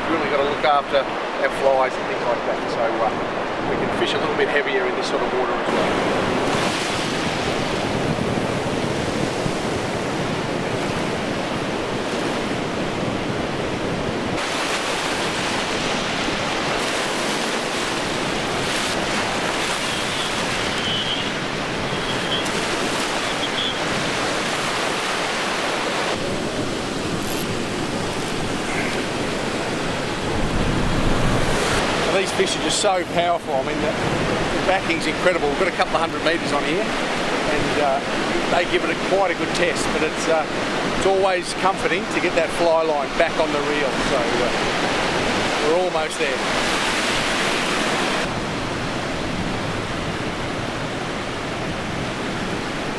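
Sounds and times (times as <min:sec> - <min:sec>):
ocean surf breaking: 0:00.0 - 0:52.9.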